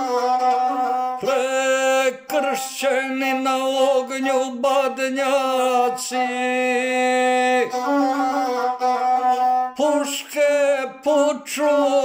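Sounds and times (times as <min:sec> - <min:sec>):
man singing slow song: 0:01.2 - 0:08.2, 0:09.7 - 0:12.0.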